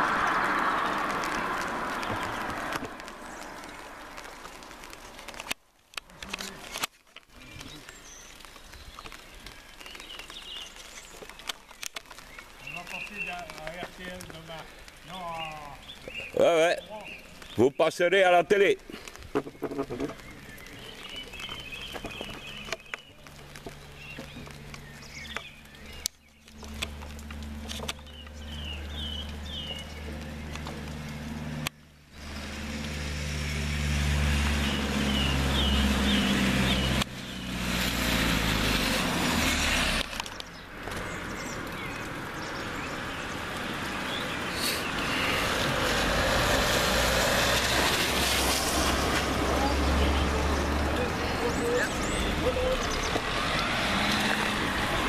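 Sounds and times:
tyres hissing on wet road: 0.0s - 5.5s, 6.1s - 55.0s
car engines humming: 0.0s - 6.7s, 19.0s - 55.0s
birds chirping: 6.1s - 55.0s.

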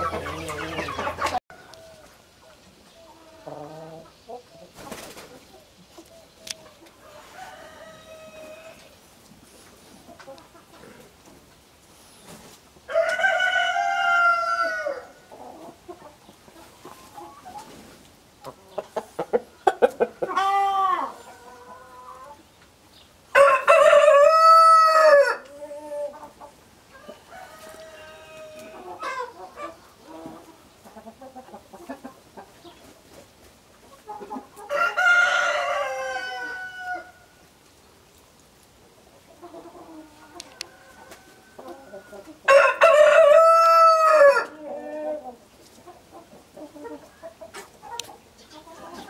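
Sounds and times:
chicken clucks: 0.0s - 36.9s, 38.9s - 49.0s
chickens calling: 0.0s - 49.0s.

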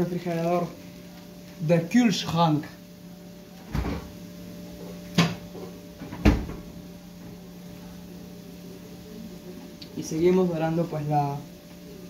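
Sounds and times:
steady hum: 0.0s - 12.0s
refrigerator door knocks: 6.1s - 6.6s.

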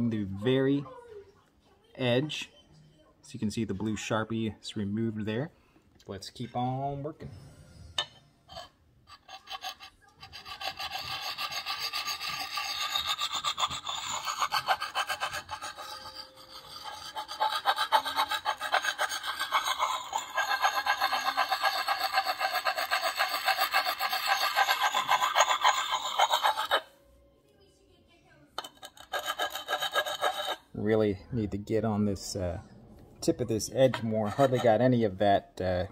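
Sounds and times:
sharpening stone grinding axe edge: 8.5s - 26.9s, 28.6s - 30.6s.

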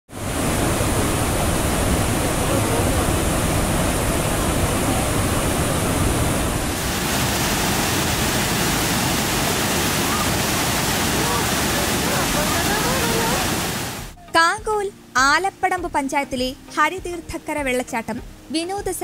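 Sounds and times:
waterfall rushing over rocks: 0.1s - 14.2s.

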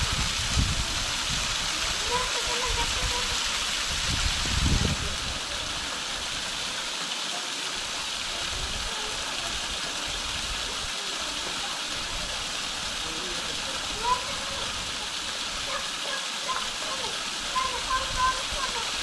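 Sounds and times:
small waterfall splashing: 0.0s - 19.0s.

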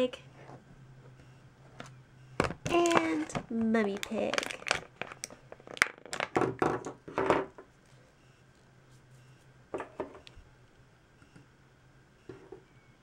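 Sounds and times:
plastic crinkles and knocks: 2.4s - 7.6s.

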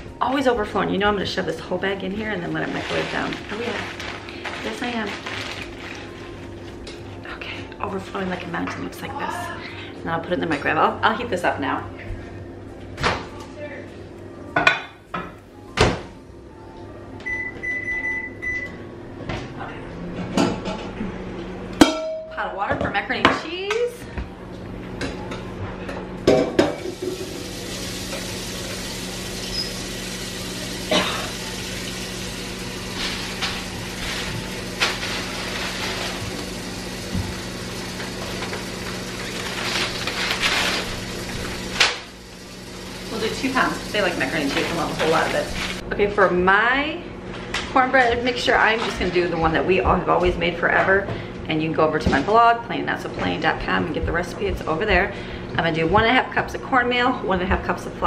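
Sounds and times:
microwave oven humming: 3.2s - 58.0s
microwave beeps: 17.2s - 18.8s, 29.3s - 30.0s.

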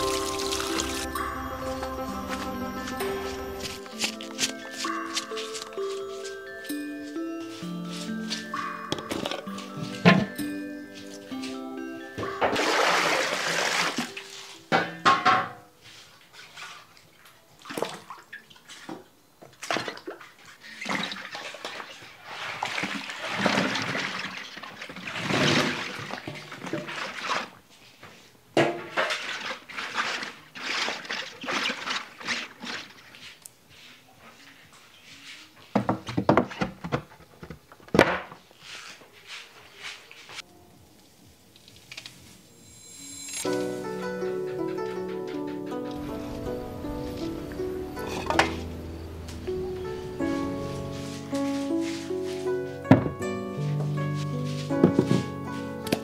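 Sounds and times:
water pouring into a pot: 0.0s - 1.1s.

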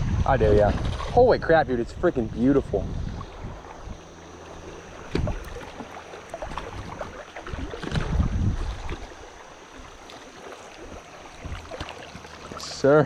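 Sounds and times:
wind buffeting microphone: 0.0s - 9.4s, 10.8s - 11.9s
low rumbling: 0.0s - 10.0s
water around a canoe: 0.0s - 13.0s
small knocks on a canoe: 5.0s - 7.1s, 10.0s - 12.6s.

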